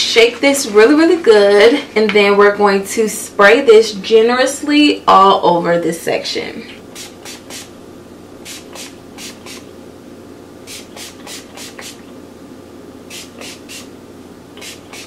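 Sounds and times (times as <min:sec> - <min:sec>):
spray bottle hissing spritzes: 0:06.9 - 0:07.7, 0:08.4 - 0:09.7, 0:10.7 - 0:12.0, 0:13.1 - 0:13.9, 0:14.6 - 0:15.0.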